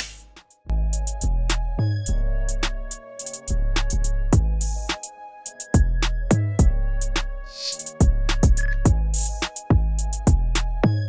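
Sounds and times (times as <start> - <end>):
hi-hat ticks: 2.5 - 4.0, 7.6 - 10.4
bass drum hits: 8.0 - 9.0.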